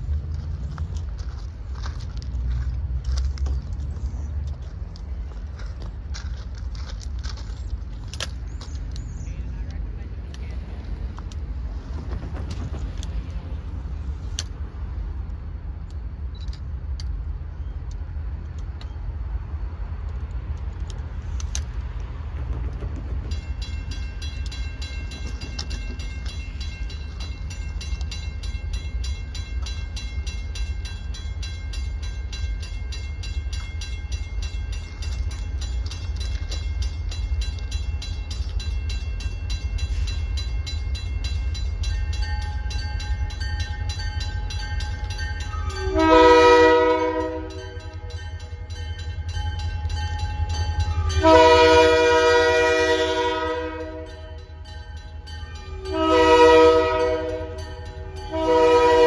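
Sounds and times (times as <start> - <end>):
crossing bell ringing: 23.1 - 59.0
locomotive air horn blasts: 45.5 - 48.1, 51.0 - 54.4, 55.6 - 59.0.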